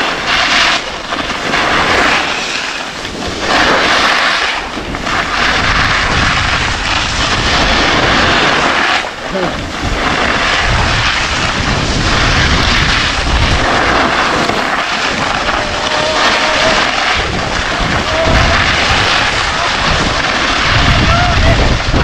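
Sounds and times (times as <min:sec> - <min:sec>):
skis sliding on packed snow: 0:00.0 - 0:22.0
wind rushing over microphone: 0:00.0 - 0:22.0.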